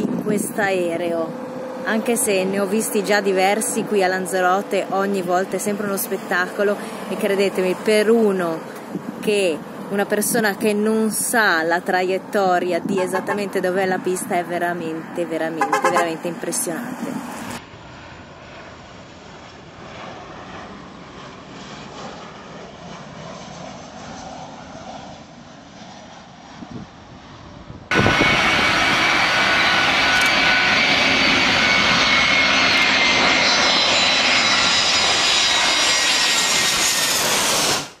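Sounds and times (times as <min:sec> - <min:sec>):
wind-like outdoor noise: 0:00.0 - 0:33.3
jet airliner passing overhead: 0:00.0 - 0:38.0.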